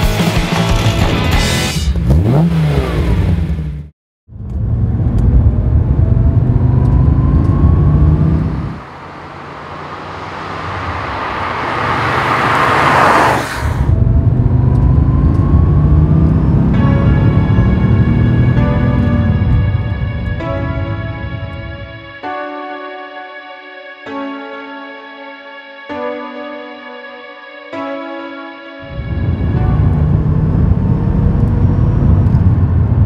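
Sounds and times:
car engine accelerating: 0:00.8 - 0:22.1, 0:28.8 - 0:33.0
intro music: 0:13.9 - 0:32.1.

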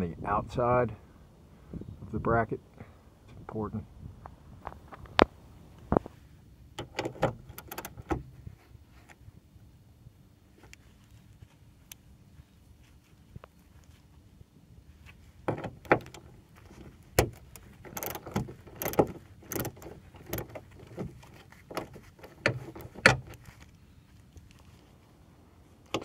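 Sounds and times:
ratchet wrench clicking: 0:17.4 - 0:20.5.

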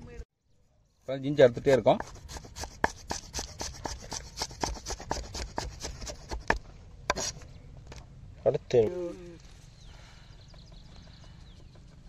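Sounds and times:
knife chopping: 0:01.6 - 0:07.3.

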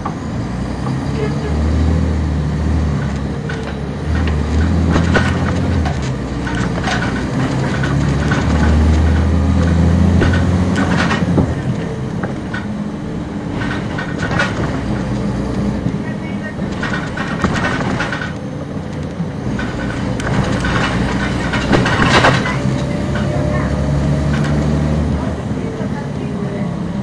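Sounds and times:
bus body rattling and clicking: 0:00.0 - 0:27.0
diesel engine droning: 0:00.0 - 0:27.0.

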